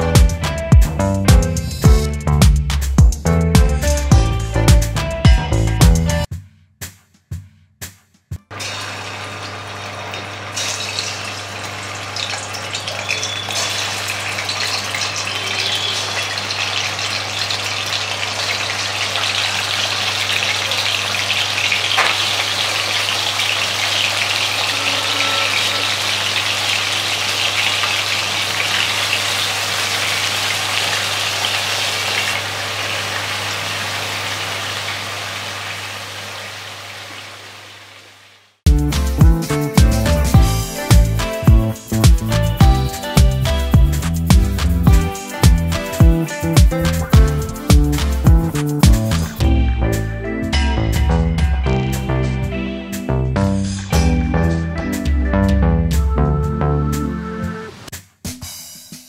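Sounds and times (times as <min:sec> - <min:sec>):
food deep-frying in bubbling oil: 0:08.5 - 0:38.4.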